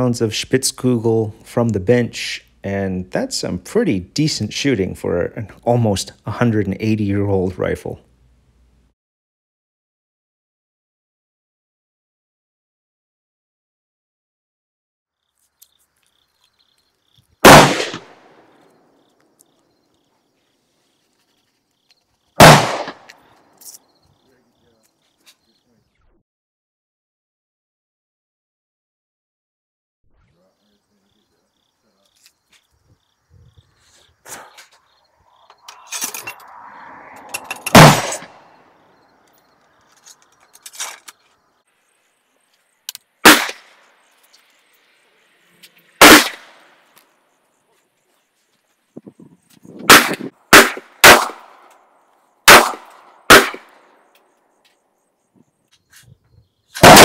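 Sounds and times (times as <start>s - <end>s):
rifle shots with echo: 17.4s - 18.5s, 22.4s - 23.1s, 37.7s - 38.4s, 43.2s - 43.8s, 46.0s - 46.8s, 49.9s - 51.6s, 52.5s - 53.8s, 56.8s - 57.0s
ramrod scraping in rifle barrel: 39.8s - 41.4s.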